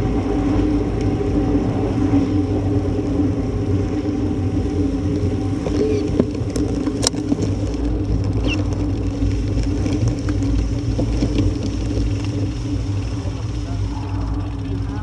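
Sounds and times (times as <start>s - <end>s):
wind and tyre rumble: 0.0s - 15.0s.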